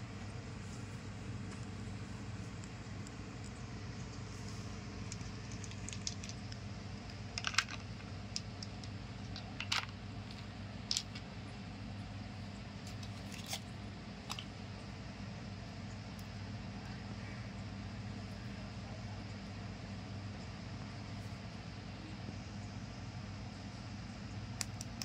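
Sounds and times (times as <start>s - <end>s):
steady low hum: 0.0s - 25.0s
seeds clicking in plastic bowl: 2.6s - 11.3s.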